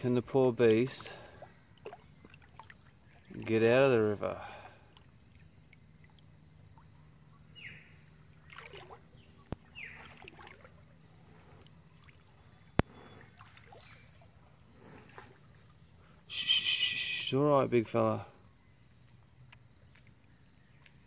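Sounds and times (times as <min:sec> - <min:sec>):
paddle strokes and drips: 0:00.0 - 0:16.4.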